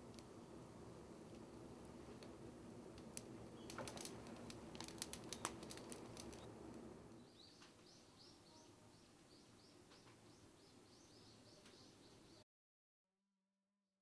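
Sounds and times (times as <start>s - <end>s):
wood fire crackling and popping: 2.2s - 6.9s
bird chirping: 7.2s - 12.4s.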